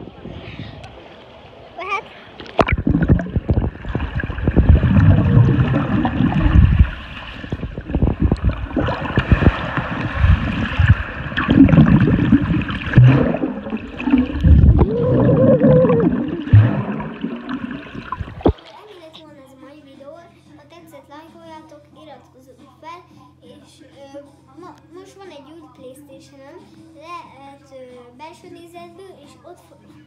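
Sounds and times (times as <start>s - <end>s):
child calling underwater: 1.8s - 2.1s, 14.1s - 16.5s
underwater gurgling and bubbling: 2.4s - 18.6s.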